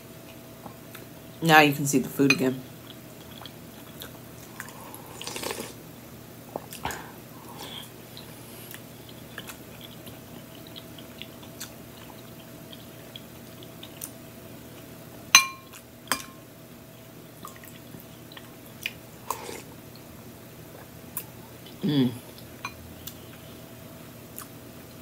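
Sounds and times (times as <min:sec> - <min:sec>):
person chewing: 0:02.8 - 0:05.8, 0:06.5 - 0:14.9, 0:17.0 - 0:19.7
spoon clinking glass bowl: 0:15.4 - 0:16.4.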